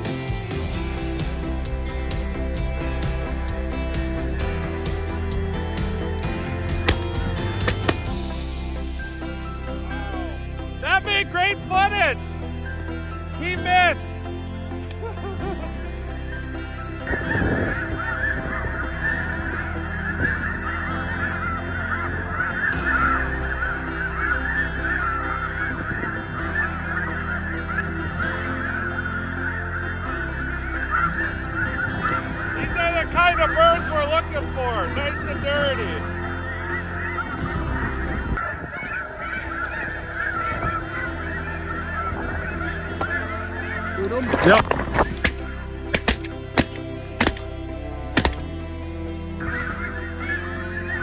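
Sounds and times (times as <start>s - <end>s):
snow geese honking: 9.9s - 14.2s, 14.8s - 51.0s.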